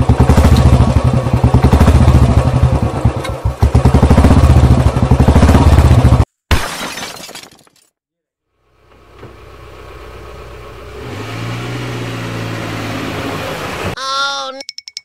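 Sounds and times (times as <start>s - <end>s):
motorcycle engine puttering: 0.0s - 6.2s.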